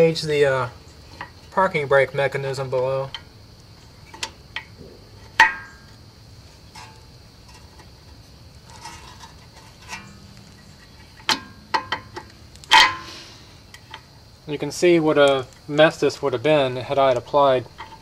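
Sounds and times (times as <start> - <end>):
metal parts clicking and clanking: 4.1 - 6.0, 6.7 - 13.1, 17.1 - 18.0.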